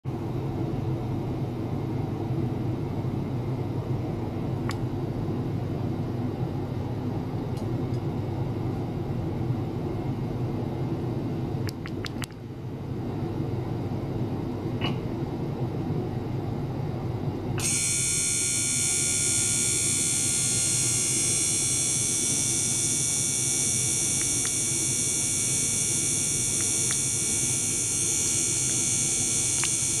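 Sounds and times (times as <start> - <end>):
pump humming: 17.6 - 30.0.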